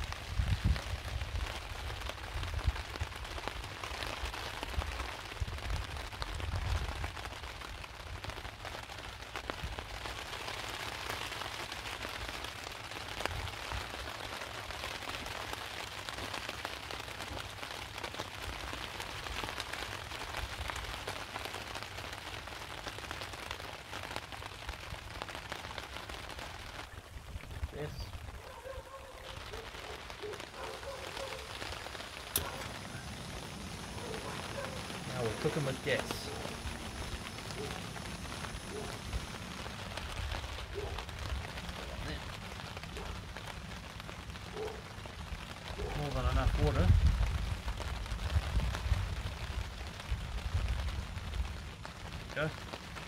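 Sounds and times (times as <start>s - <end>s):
heavy rain on a tarp: 0.0s - 53.0s
low rumbles: 31.8s - 42.4s.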